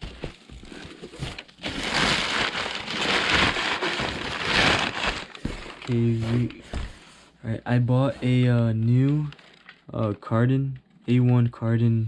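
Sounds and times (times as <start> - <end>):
packing material rustling: 0.0 - 6.8, 9.1 - 9.9.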